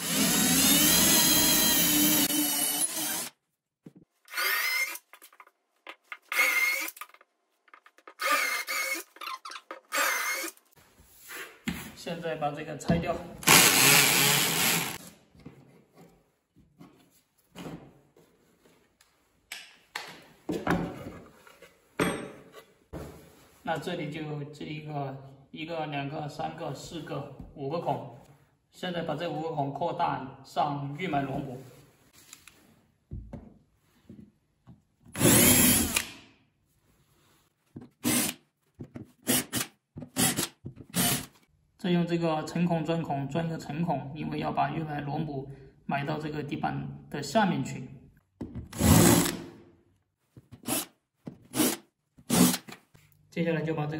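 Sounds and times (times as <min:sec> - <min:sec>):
power drill boring into wood: 0:00.0 - 0:03.4, 0:04.3 - 0:05.0, 0:06.3 - 0:07.0, 0:08.2 - 0:09.1, 0:09.9 - 0:10.6, 0:13.4 - 0:15.0, 0:35.2 - 0:36.2, 0:38.0 - 0:38.4, 0:40.2 - 0:41.3, 0:48.8 - 0:49.4, 0:51.6 - 0:52.7.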